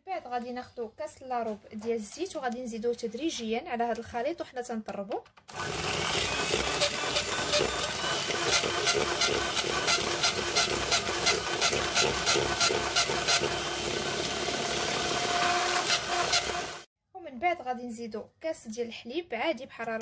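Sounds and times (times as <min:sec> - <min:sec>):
electric hand mixer whirring: 0:05.5 - 0:16.9.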